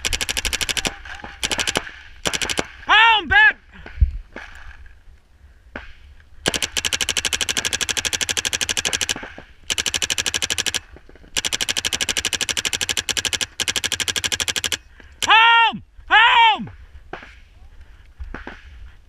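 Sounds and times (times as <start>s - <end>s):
paintball marker firing: 0.0s - 2.8s, 5.8s - 14.8s.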